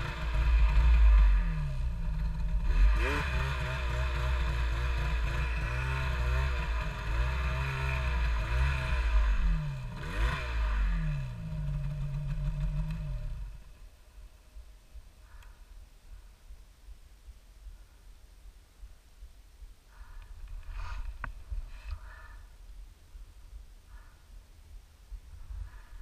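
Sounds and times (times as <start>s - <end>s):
snowmobile engine revving: 0.0s - 13.7s.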